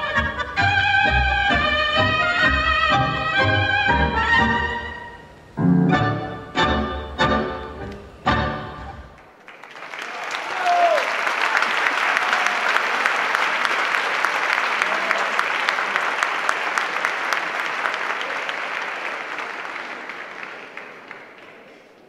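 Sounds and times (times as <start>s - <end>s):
audience applauding: 9.2s - 22.0s.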